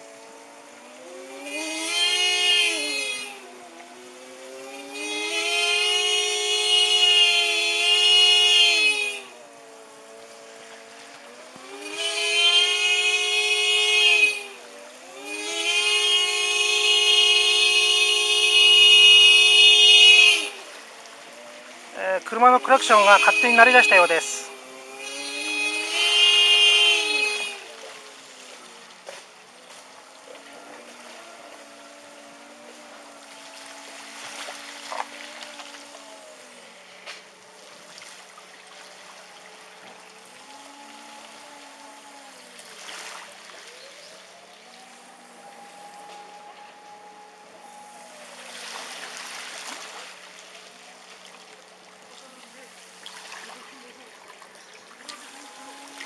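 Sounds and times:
rushing floodwater: 0.0s - 56.0s
car horn blaring: 0.4s - 10.1s, 11.3s - 28.8s, 44.0s - 48.4s.

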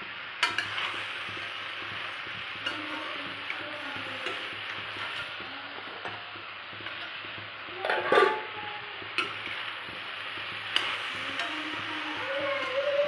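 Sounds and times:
vegetables sizzling in a pan: 0.0s - 13.0s
metallic clatter against pan: 7.8s - 8.5s.

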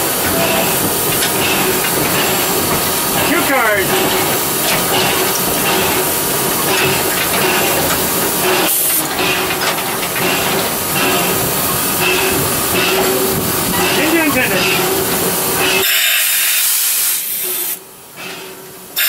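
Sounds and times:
steam rushing and hissing: 0.0s - 19.0s
sharp high steam hiss: 10.3s - 18.4s.

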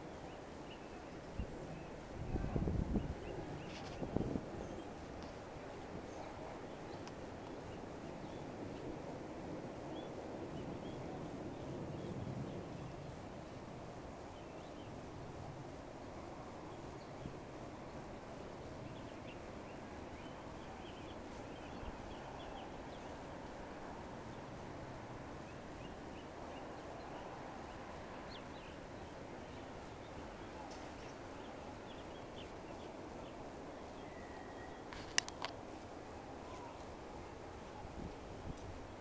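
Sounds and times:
faint bird chirps: 25.4s - 35.4s, 36.4s - 39.0s.

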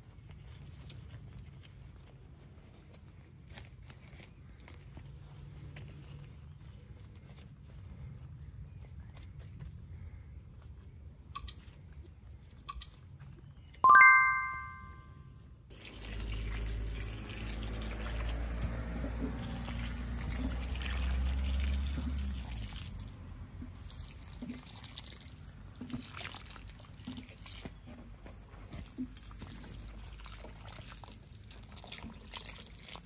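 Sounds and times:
water pouring and splashing: 15.7s - 27.8s, 28.8s - 33.0s.

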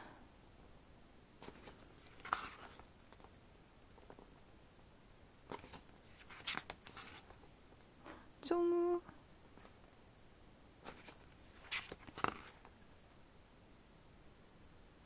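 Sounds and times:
pages turning: 1.4s - 3.4s, 5.5s - 7.5s, 10.8s - 12.8s.

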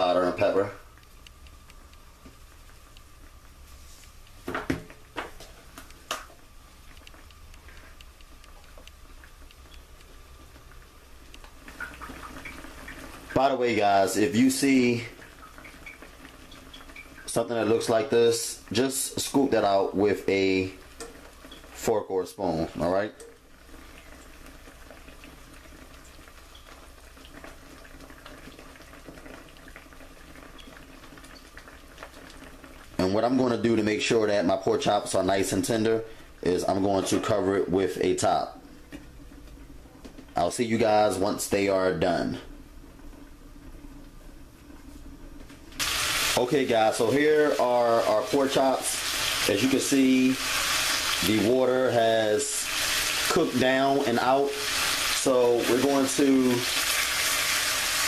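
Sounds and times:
faint ticks of simmering: 0.4s - 36.5s.

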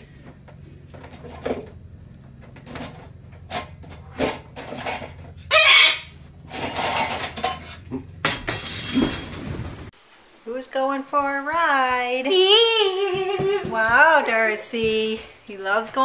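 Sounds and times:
scrapes in dish drainer: 6.4s - 7.9s.

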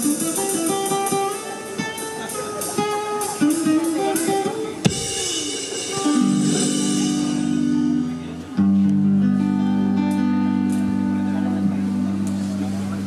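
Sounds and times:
live band with electric guitar: 0.0s - 13.0s
drum beat: 2.3s - 7.8s.

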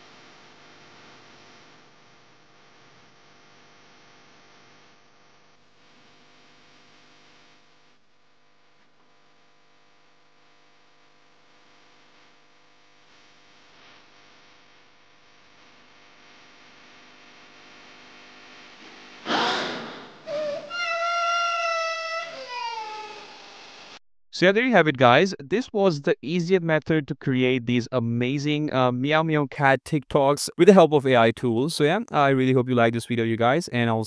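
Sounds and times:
loud breathy burst: 19.3s - 20.8s
high wailing cry: 19.3s - 23.6s.

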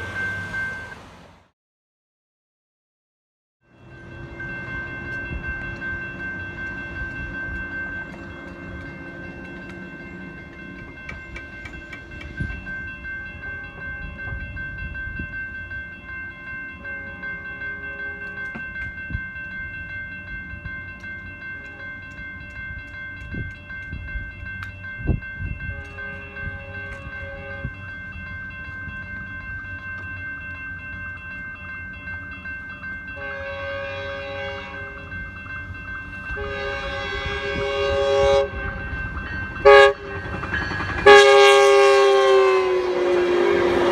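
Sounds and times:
crossing warning bell ringing: 0.0s - 1.2s, 3.7s - 43.9s
train horn chord blasts: 25.6s - 27.8s, 33.2s - 35.1s, 36.3s - 38.9s, 39.6s - 40.2s, 41.0s - 43.9s.

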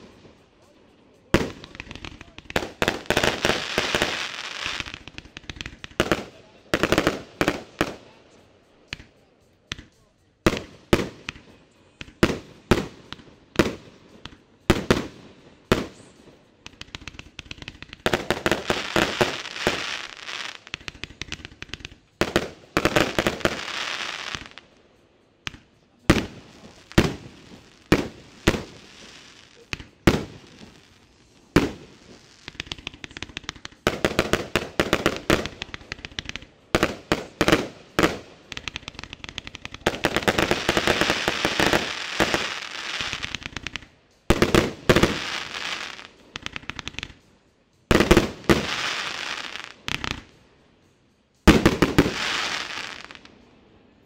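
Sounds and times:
fireworks firing and crackling: 0.0s - 50.5s, 51.3s - 53.5s.

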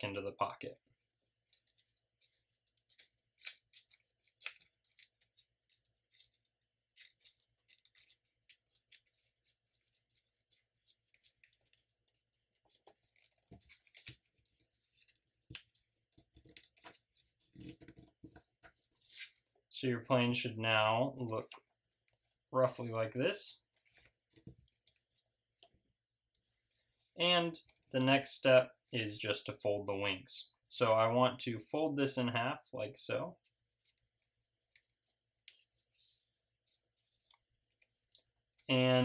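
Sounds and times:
paper crinkling and rustling: 0.4s - 19.5s, 33.4s - 38.7s.

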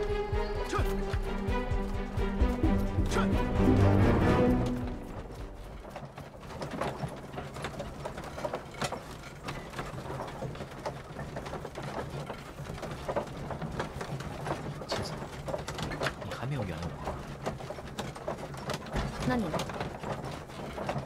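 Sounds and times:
carriage rumbling: 0.0s - 21.0s
carriage creaks and knocks: 4.4s - 21.0s.

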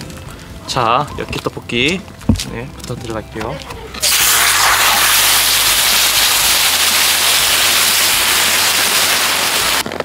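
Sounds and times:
food sizzling on hot griddle: 4.0s - 9.8s.

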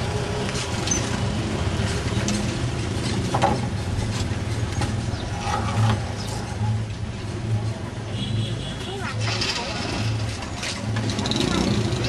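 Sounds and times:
knocks and rattles: 2.1s - 6.6s.

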